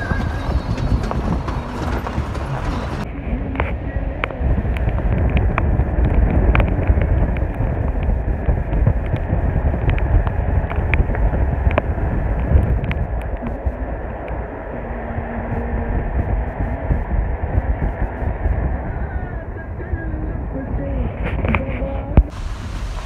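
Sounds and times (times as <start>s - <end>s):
vehicle engine and tyre rumble: 0.0s - 23.0s
cabin rattles and clicks: 0.1s - 3.0s.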